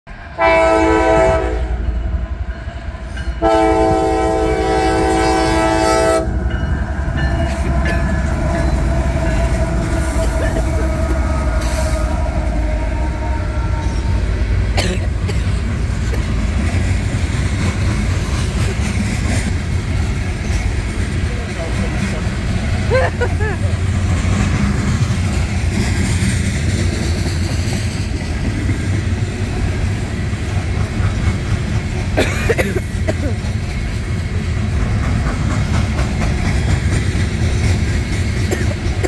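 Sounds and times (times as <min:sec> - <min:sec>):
train cars rumbling past: 0:00.1 - 0:39.0
locomotive air horn: 0:00.3 - 0:01.9, 0:03.4 - 0:06.4, 0:07.5 - 0:14.8
wheels clicking over rail joints: 0:32.8 - 0:39.0.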